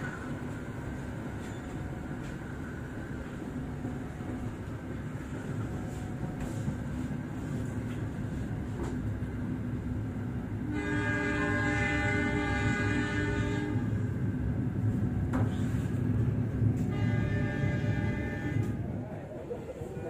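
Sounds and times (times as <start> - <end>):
train carriages rumbling past: 0.0 - 20.0
train horn blast: 10.7 - 14.1, 16.8 - 18.8.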